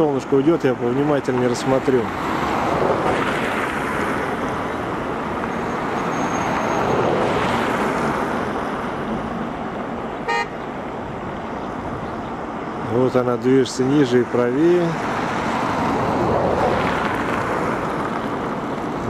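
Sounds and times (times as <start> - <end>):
high horn toot: 10.2 - 10.6
vehicle passing by: 13.8 - 19.0.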